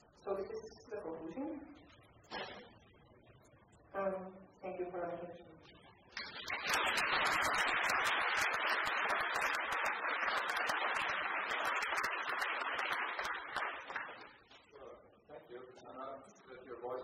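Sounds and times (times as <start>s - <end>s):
audience applauding: 6.2s - 14.4s.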